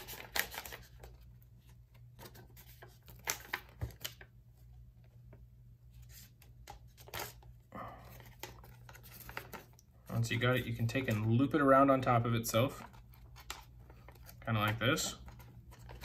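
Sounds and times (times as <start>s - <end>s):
low steady hum: 0.0s - 16.0s
paper rustles and taps: 2.2s - 4.2s.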